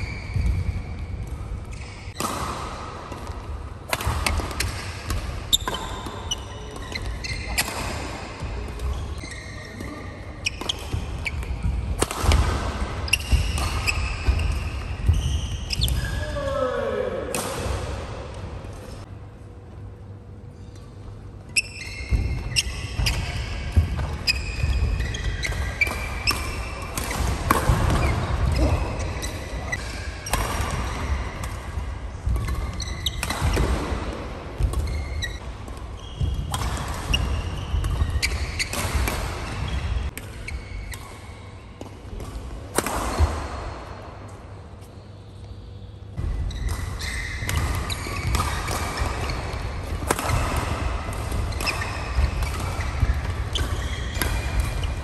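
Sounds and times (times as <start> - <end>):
shoes squeaking on court: 0.0 - 2.2, 5.5 - 11.8, 13.0 - 16.3, 21.5 - 31.5, 32.2 - 41.5, 44.7 - 55.0
racket hitting shuttlecock: 0.3 - 16.1, 17.3 - 18.8, 21.6 - 44.2, 46.2 - 55.0.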